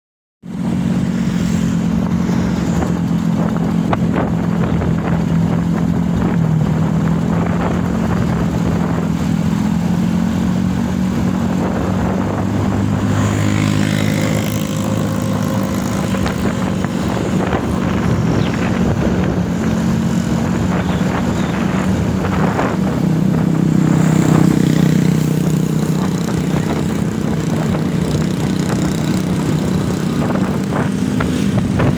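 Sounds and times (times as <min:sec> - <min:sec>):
road and wind noise: 0:00.4 - 0:31.9
scooter engines running: 0:00.5 - 0:31.9.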